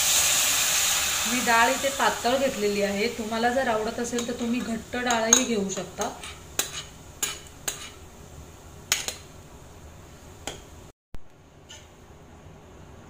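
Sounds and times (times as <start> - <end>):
steel ladle clinking on metal pan: 4.1 - 7.9.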